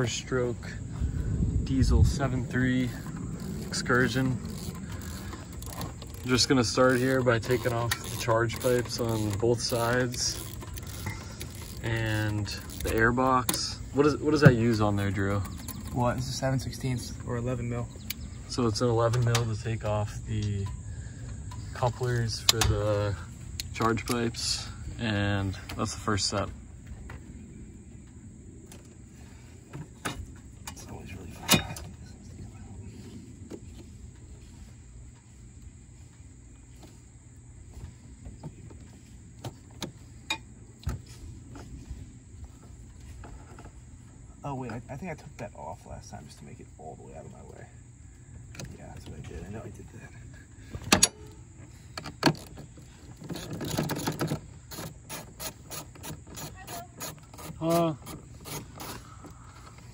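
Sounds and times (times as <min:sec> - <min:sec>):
hand ratchet clicking: 0:03.0 - 0:13.6
rubber boot rubbing on pipe: 0:54.6 - 0:59.5.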